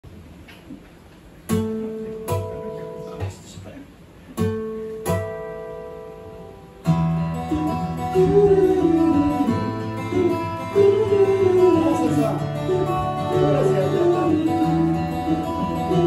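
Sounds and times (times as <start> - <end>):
acoustic guitar strumming: 1.4 - 3.6, 4.3 - 16.0
person singing: 7.4 - 16.0.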